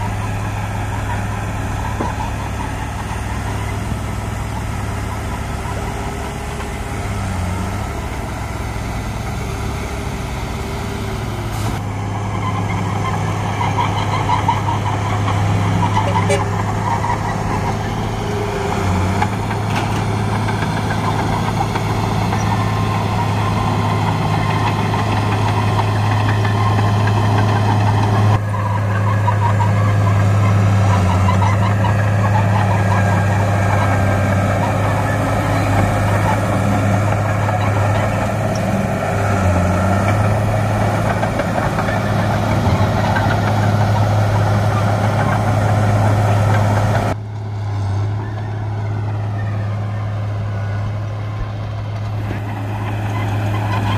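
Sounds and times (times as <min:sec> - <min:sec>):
bulldozer diesel engine droning: 0:00.0 - 0:53.9.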